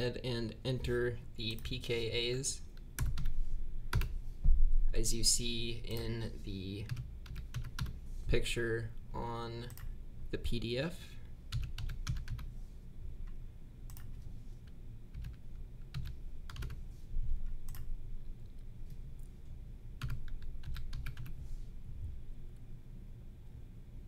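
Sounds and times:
typing on computer keyboard: 0:03.0 - 0:03.3, 0:03.9 - 0:04.1, 0:06.9 - 0:07.9, 0:11.5 - 0:12.5, 0:15.1 - 0:16.8, 0:20.0 - 0:21.4.

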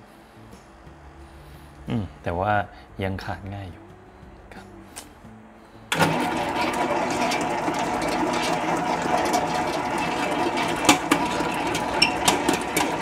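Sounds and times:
stand mixer whirring: 0:05.9 - 0:13.0.

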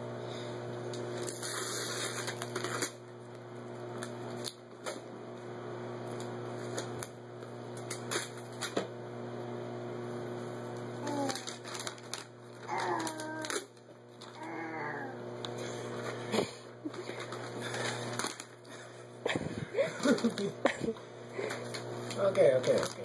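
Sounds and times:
steady low hum: 0:00.0 - 0:23.0
wrapping paper rustling and tearing: 0:01.1 - 0:03.0, 0:11.0 - 0:14.9, 0:16.9 - 0:18.8, 0:19.9 - 0:20.5, 0:21.5 - 0:23.0.

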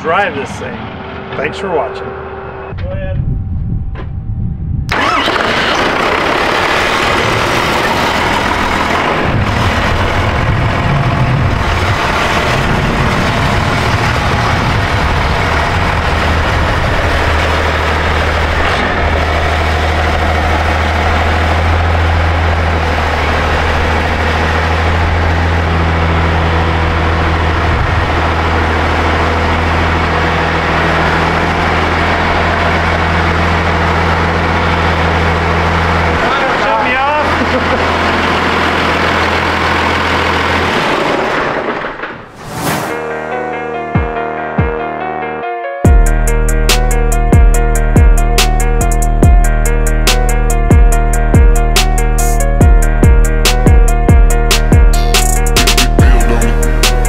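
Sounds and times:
diesel truck engine droning: 0:00.0 - 0:57.0.

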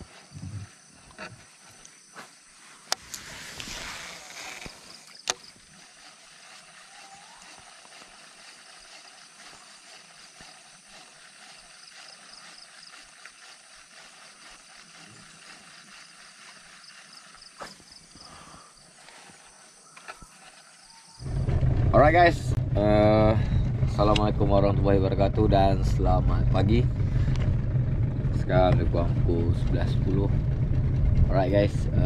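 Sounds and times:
fishing reel spool whirring: 0:03.0 - 0:17.6.

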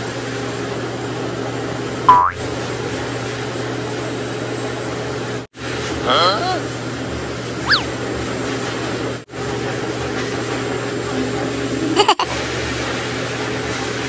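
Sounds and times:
high squeak falling in pitch: 0:07.6 - 0:07.9.

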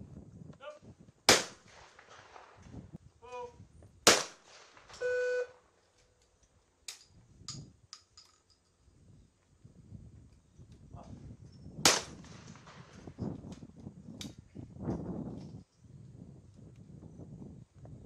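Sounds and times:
shotgun shots: 0:01.3 - 0:02.6, 0:04.0 - 0:05.1, 0:11.8 - 0:12.9
shooter calling: 0:04.1 - 0:05.7
short electronic beep: 0:05.0 - 0:05.6.

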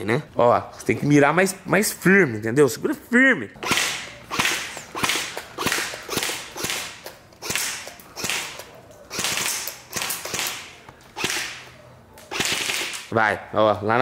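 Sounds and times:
airsoft rifle shots: 0:03.6 - 0:13.1.

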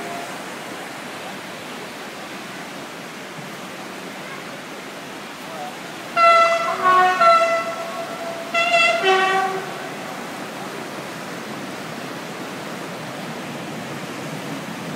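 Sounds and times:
river rushing: 0:00.0 - 0:14.9
horn blasts moving between tones: 0:06.1 - 0:10.6.

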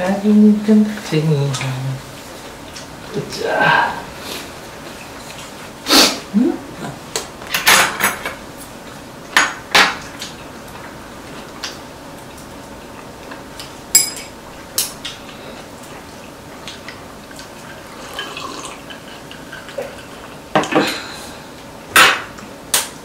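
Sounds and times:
cutlery clinking on ceramic bowls: 0:14.0 - 0:14.4.

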